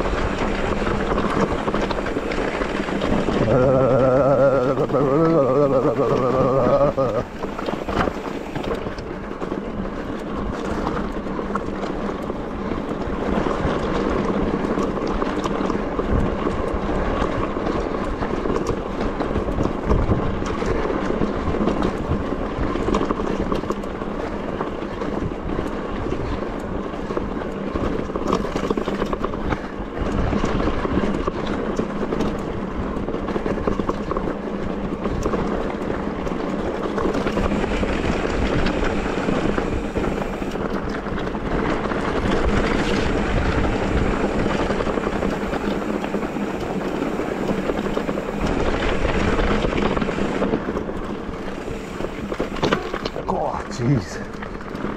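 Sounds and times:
tyres grinding over stones: 0.0s - 9.2s
bike frame and chain clattering: 0.0s - 53.3s.

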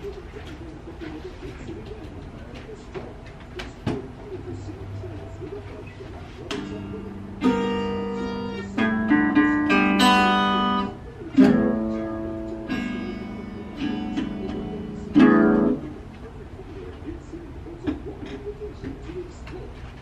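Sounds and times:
acoustic guitar strummed chords: 6.5s - 16.1s.

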